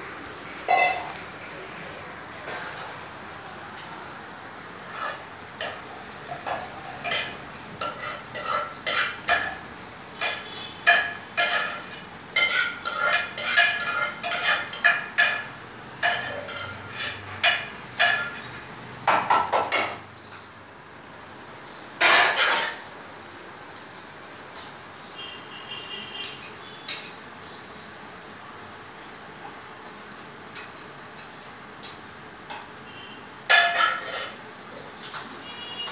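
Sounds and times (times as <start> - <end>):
metal bowl clinking: 0.6 - 1.2, 5.6 - 9.6, 10.2 - 18.5
bowl scraping on stone floor: 0.6 - 1.4, 2.4 - 3.1, 4.8 - 9.6, 10.2 - 18.6, 33.8 - 34.4.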